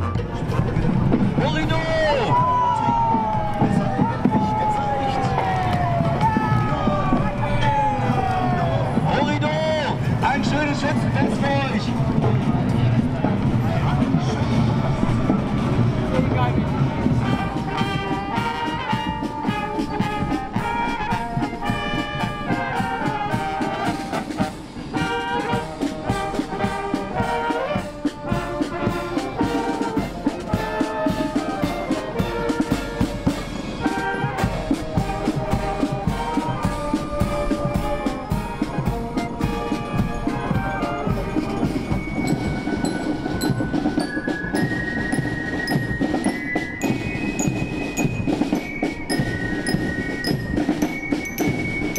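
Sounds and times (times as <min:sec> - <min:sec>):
brass band playing a march: 0:00.0 - 0:51.9
drum beat: 0:00.1 - 0:51.9
bell lyres ringing high notes: 0:36.3 - 0:51.9.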